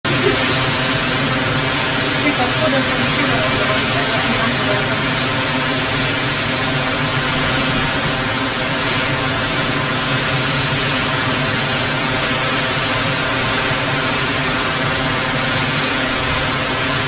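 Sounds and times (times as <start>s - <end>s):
storm wind and driving rain: 0.0s - 17.0s.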